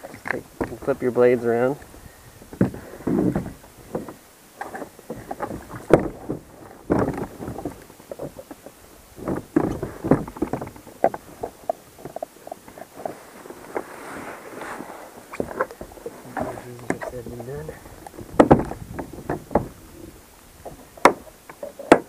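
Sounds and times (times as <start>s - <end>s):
plastic clunks and knocks: 2.5s - 8.6s, 9.2s - 12.2s, 15.4s - 19.8s, 20.6s - 22.0s.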